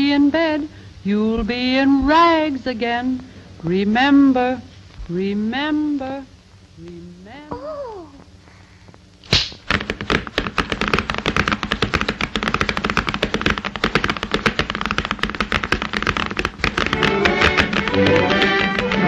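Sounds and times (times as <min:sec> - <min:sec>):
sharp crack: 0:09.2 - 0:09.9.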